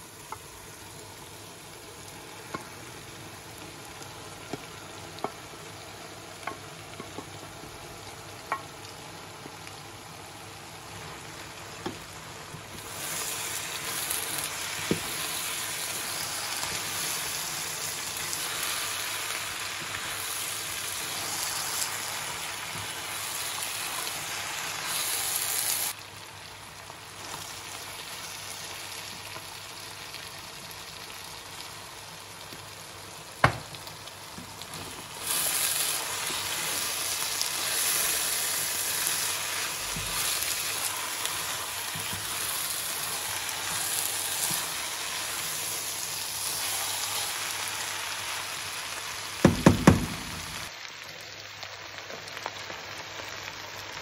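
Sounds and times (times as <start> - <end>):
chicken sizzling in a pot: 0.0 - 54.0
sharp knock: 49.5 - 50.4.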